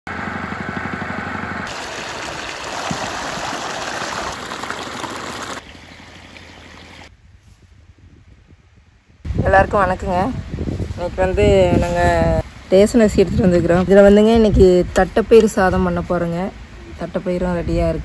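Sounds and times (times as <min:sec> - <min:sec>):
water pump humming: 0:00.1 - 0:07.1
water gushing into channel: 0:01.6 - 0:07.1.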